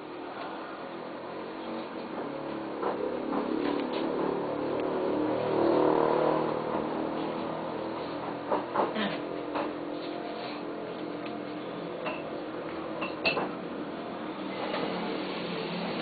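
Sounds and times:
bar background hum: 0:00.0 - 0:16.0
tableware clinking: 0:12.0 - 0:12.3.

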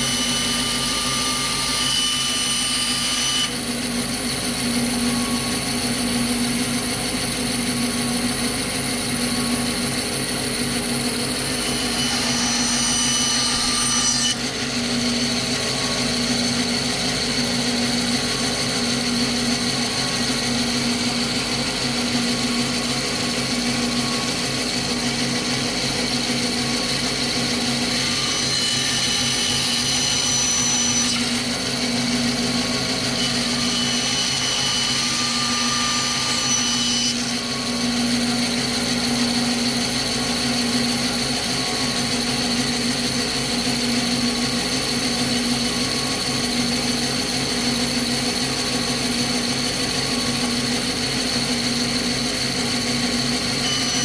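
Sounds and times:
power tool cutting metal: 0:00.0 - 0:54.0.

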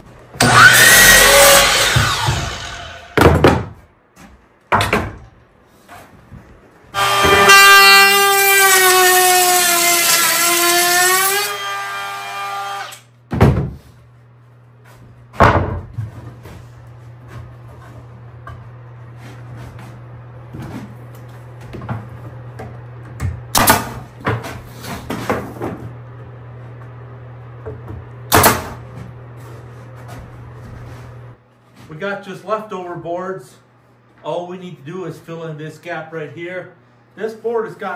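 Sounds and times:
power saw whining: 0:00.4 - 0:03.2, 0:07.0 - 0:13.1.

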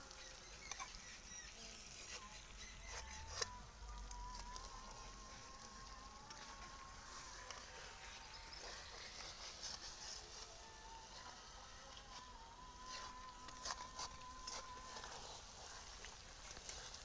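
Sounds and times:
fish sizzling in a pan: 0:00.0 - 0:17.0.

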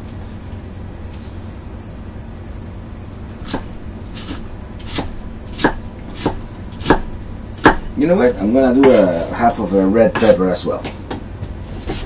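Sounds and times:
low hum: 0:00.0 - 0:09.8
faint high whine: 0:00.0 - 0:12.0
knife cutting on cutting board: 0:03.4 - 0:07.0, 0:11.8 - 0:12.0.

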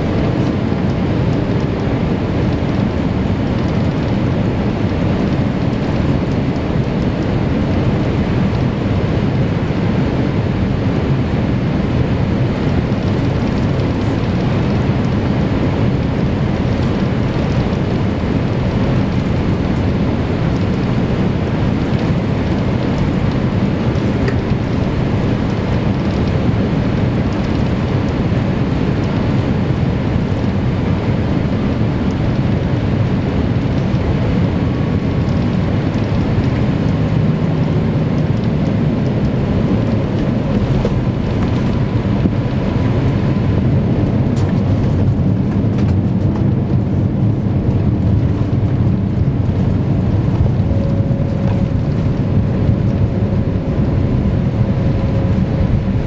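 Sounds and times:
airplane cabin engine rumble: 0:00.0 - 0:56.0.

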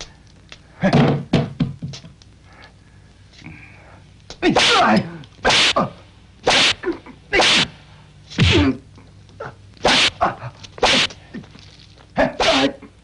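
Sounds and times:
whip cracks: 0:04.5 - 0:07.8, 0:09.8 - 0:10.2, 0:10.8 - 0:11.2.

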